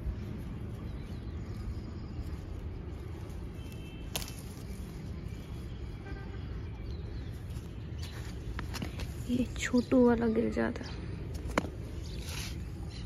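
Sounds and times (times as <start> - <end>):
leaves and branches rustling: 0.0 - 13.0.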